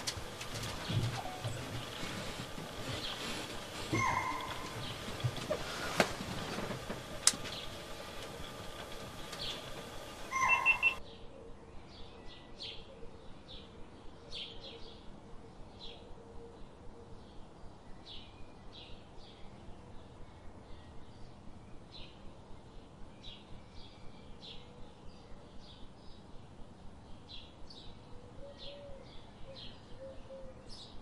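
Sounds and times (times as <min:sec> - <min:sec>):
loud bird call: 0:00.0 - 0:11.0
high bird chirps: 0:03.9 - 0:05.1, 0:07.5 - 0:11.0.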